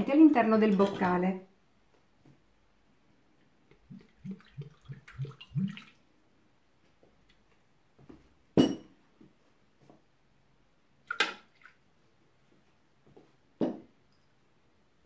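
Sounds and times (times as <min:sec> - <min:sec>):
glass clinking on steel bowl: 0:08.6 - 0:08.9.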